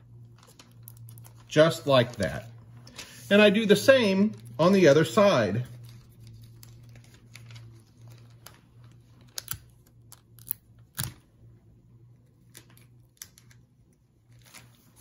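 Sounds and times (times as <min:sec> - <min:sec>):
faint low hum: 0:00.0 - 0:15.0
newspaper rustling: 0:00.1 - 0:09.4, 0:14.3 - 0:15.0.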